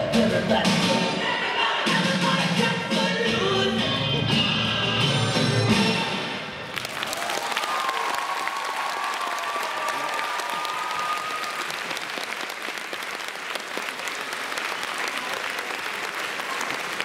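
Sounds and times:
audience applauding: 6.7s - 17.0s.

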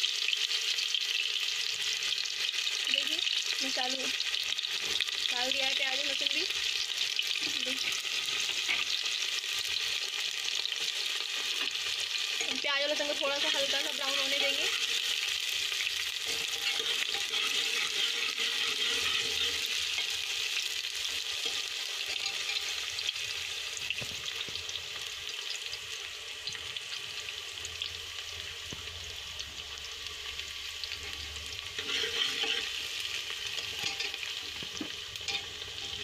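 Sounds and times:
onion sizzling in hot oil: 0.0s - 36.0s
steel ladle stirring in pot: 13.5s - 23.2s, 31.0s - 36.0s.

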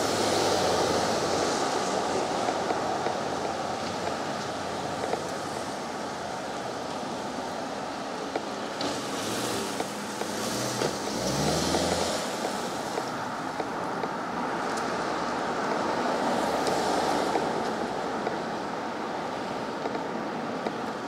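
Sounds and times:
street traffic: 0.0s - 21.0s
car driving past: 8.9s - 13.0s.

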